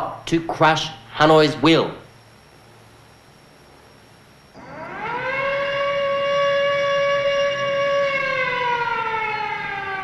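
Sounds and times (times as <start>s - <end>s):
air-raid siren wailing: 4.6s - 10.0s.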